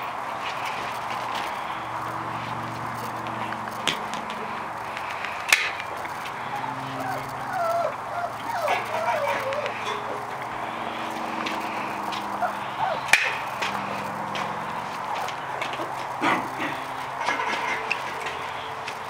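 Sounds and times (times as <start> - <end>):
puppies whining and yipping: 6.4 - 14.1.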